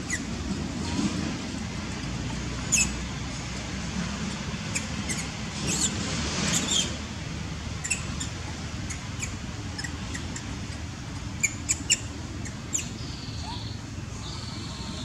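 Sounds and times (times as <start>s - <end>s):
monkeys squeaking and chirping: 0.0s - 0.3s, 2.7s - 3.0s, 4.7s - 7.0s, 7.8s - 15.0s.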